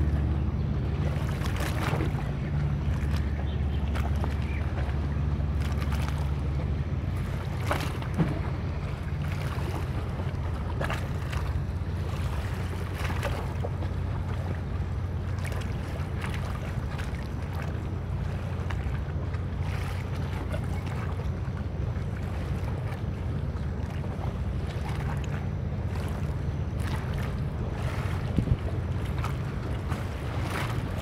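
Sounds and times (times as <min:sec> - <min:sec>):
boat engine rumble: 0:00.0 - 0:31.0
water splashing against hull: 0:00.0 - 0:31.0
wind buffeting microphone: 0:26.7 - 0:31.0.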